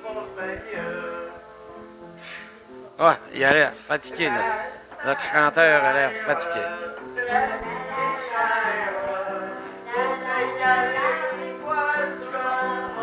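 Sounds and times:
man singing: 4.1s - 9.6s.

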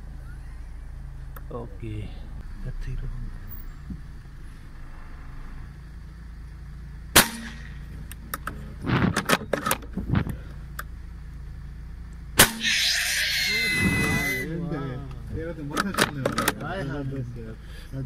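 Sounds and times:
sharp bangs: 7.1s - 7.9s, 12.4s - 14.5s.

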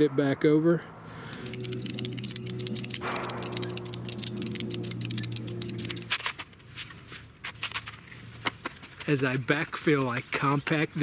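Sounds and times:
low hum: 0.0s - 6.7s
ratchet strap clicking: 1.3s - 6.2s.

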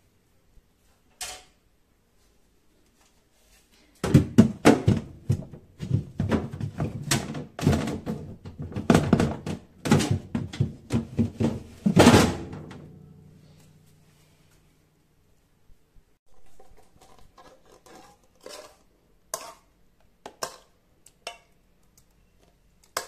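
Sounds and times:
plastic drawer knocking and scraping: 4.0s - 12.5s.

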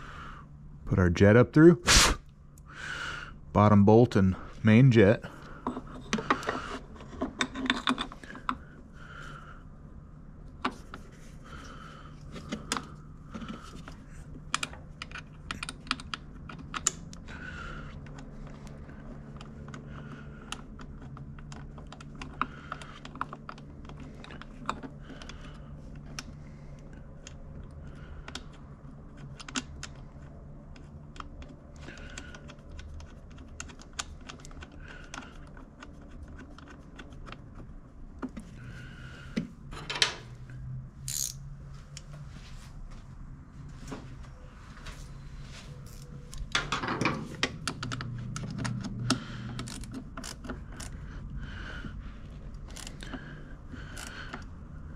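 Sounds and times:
steady low hum: 0.0s - 54.9s
clicks of small metal parts: 41.1s - 41.4s, 45.9s - 51.0s.

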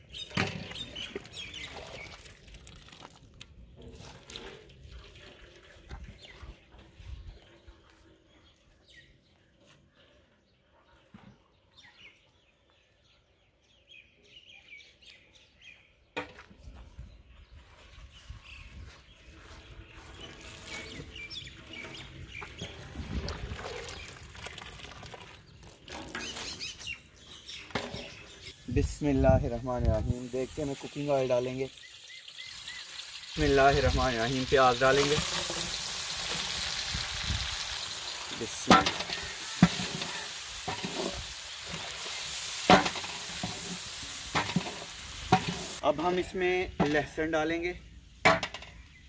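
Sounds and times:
birds calling: 0.0s - 2.6s, 17.0s - 49.0s
water draining into metal basin: 22.4s - 26.4s
onions sizzling in hot oil: 30.0s - 46.0s
wooden spoon scraping and knocking pot: 38.6s - 41.2s.

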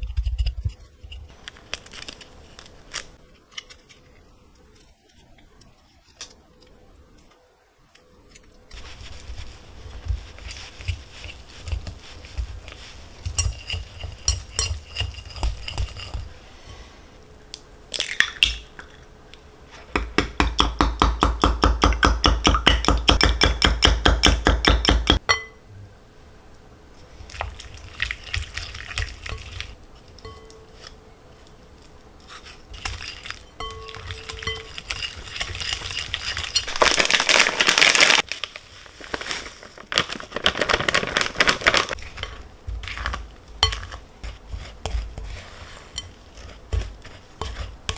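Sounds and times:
egg beaten tapping glass mug: 20.0s - 25.6s, 33.6s - 36.1s
glass clink: 25.3s - 25.6s, 30.2s - 30.7s, 33.6s - 34.9s
scraping butter in glass bowl: 32.3s - 36.8s, 42.2s - 47.9s.

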